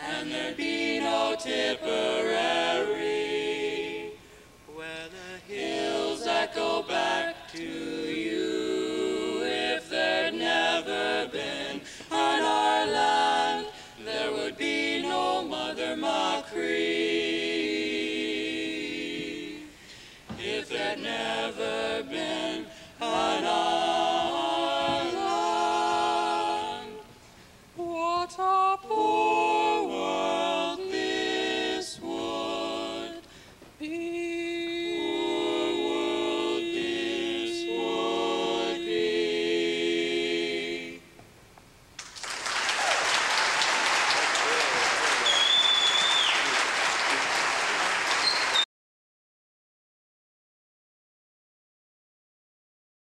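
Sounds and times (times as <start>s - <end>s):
male voices singing in harmony: 0.0s - 27.1s, 27.8s - 41.0s
singers breathing: 4.2s - 4.6s, 11.8s - 12.1s, 13.7s - 14.0s, 19.7s - 20.3s, 22.7s - 23.0s, 33.2s - 33.6s.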